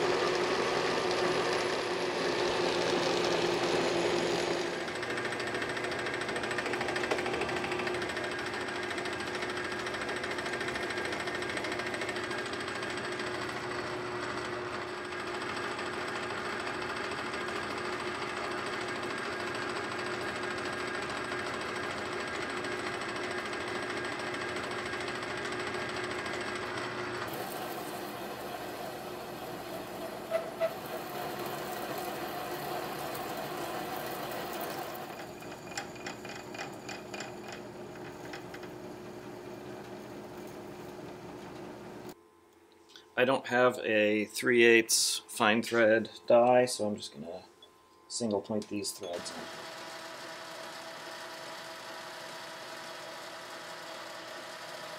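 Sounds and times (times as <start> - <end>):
metal lathe whirring: 0.0 - 42.1, 49.0 - 54.9.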